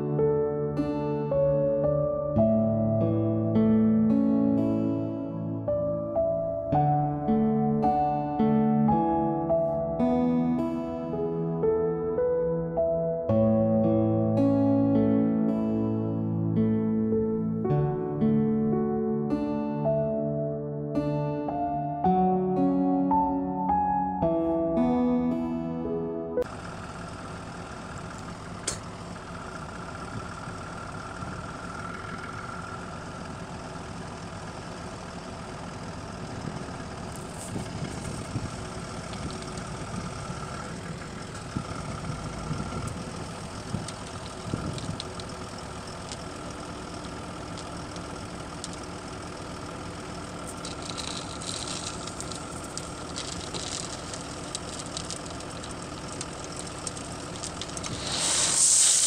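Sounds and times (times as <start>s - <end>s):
diesel truck engine idling: 26.4s - 59.0s.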